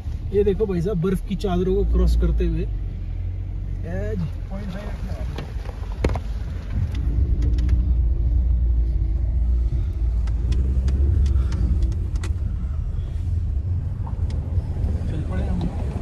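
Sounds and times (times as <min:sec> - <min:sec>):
car rumbling over rough road: 0:00.0 - 0:16.0
stones clicking under tyres: 0:05.2 - 0:08.1, 0:10.1 - 0:12.5.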